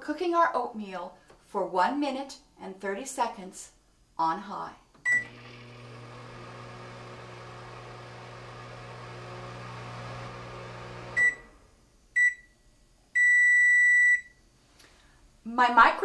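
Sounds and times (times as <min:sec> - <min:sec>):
microwave beeps: 0:05.0 - 0:06.7, 0:11.0 - 0:11.6, 0:12.2 - 0:12.6, 0:13.2 - 0:14.4
microwave oven humming: 0:05.0 - 0:12.6.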